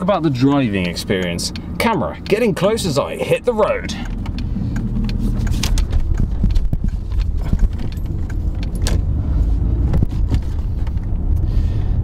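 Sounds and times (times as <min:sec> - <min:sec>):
car engine rumble: 0:00.0 - 0:12.0
road noise: 0:00.0 - 0:12.0
clicks and light rattles: 0:04.0 - 0:09.1.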